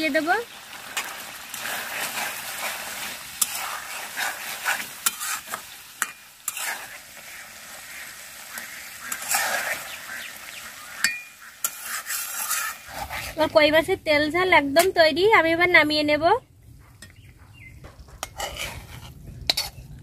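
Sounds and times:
curry sizzling: 0.0s - 20.0s
spatula scraping metal pan: 0.9s - 13.7s, 17.8s - 20.0s.

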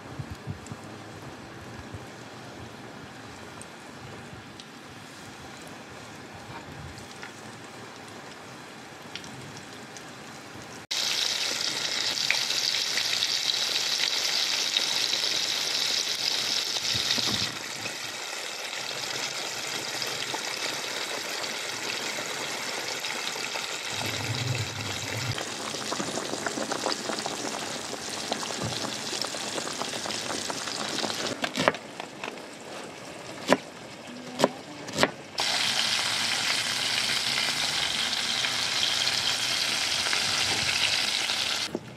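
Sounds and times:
fish sizzling in hot oil: 10.9s - 31.4s, 35.4s - 41.7s.

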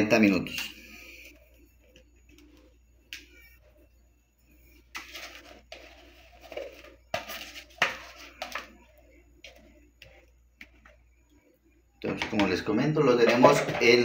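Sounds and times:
spatula scraping bowl: 4.9s - 11.1s.

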